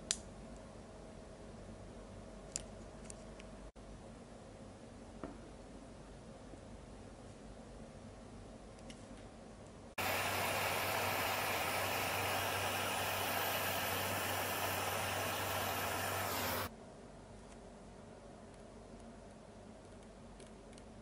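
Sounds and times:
gas torch flame hissing: 10.0s - 16.7s.

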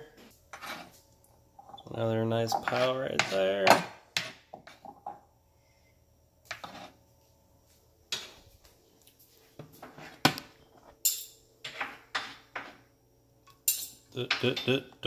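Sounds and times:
dishes clinking and knocking: 11.0s - 12.8s, 13.5s - 14.8s.

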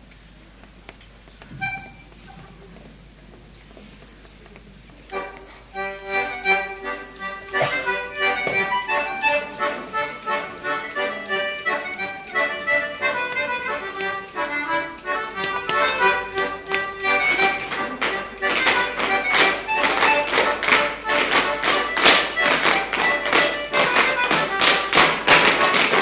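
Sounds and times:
button accordion playing a tune: 1.6s - 2.0s, 5.1s - 26.0s.

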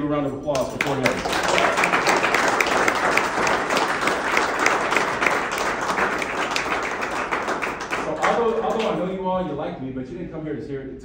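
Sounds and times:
people applauding: 0.5s - 9.1s.

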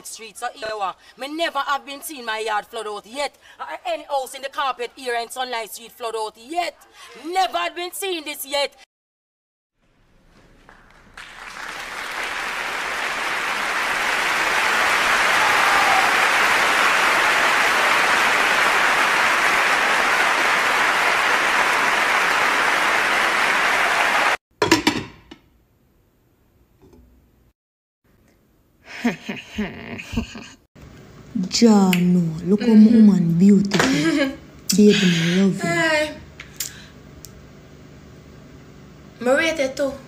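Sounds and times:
crowd applauding: 10.5s - 24.4s.

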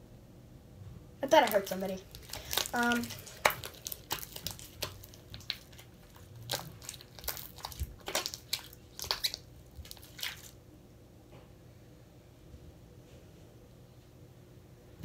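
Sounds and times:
slime squelching and popping: 1.2s - 10.6s.

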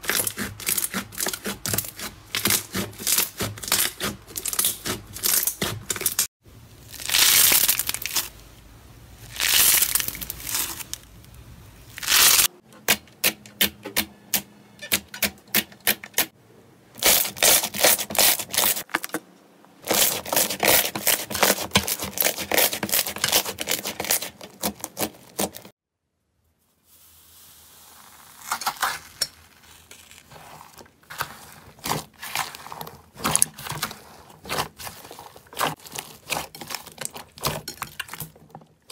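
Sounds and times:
slime squishing: 0.0s - 6.3s, 19.8s - 25.7s, 27.9s - 38.9s.

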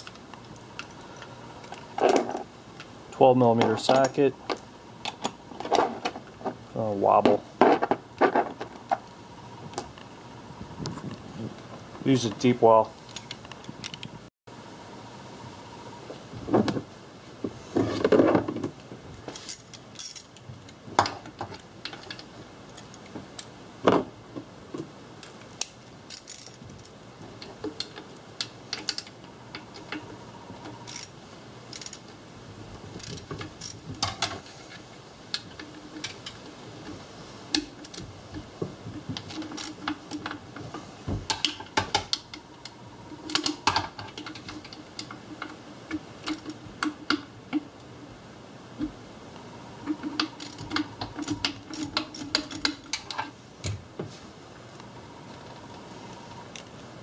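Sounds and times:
tools clinking against metal: 3.5s - 5.8s, 18.6s - 22.3s, 30.8s - 32.1s, 49.9s - 53.3s.

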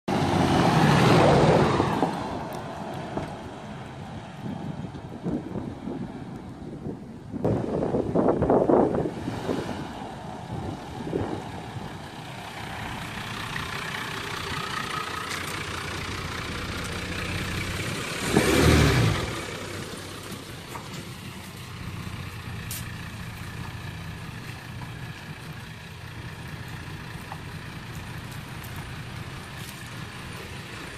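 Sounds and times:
car engine running: 10.5s - 30.9s.

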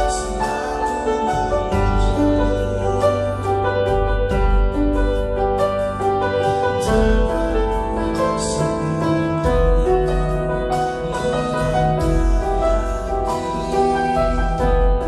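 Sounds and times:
grand piano melody: 0.0s - 15.0s.

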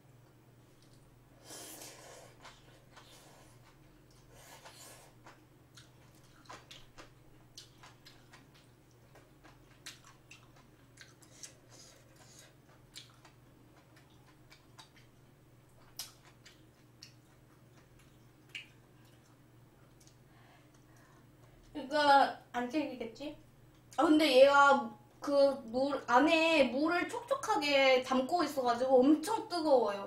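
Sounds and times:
close-miked chewing: 2.3s - 21.7s.

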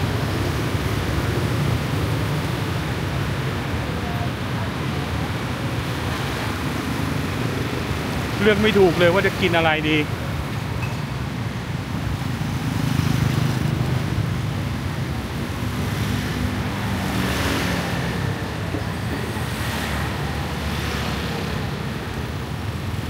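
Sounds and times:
scooters and motorbikes passing: 0.0s - 10.4s, 11.3s - 23.0s.

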